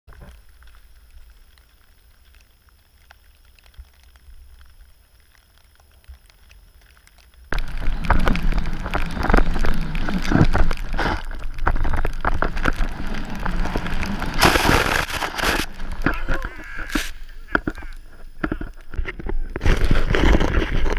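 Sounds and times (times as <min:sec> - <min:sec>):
wind rumble on microphone: 0:07.5 - 0:20.9
skis rushing through powder snow: 0:07.6 - 0:18.4, 0:19.4 - 0:20.9
snow spray burst: 0:12.9 - 0:17.5.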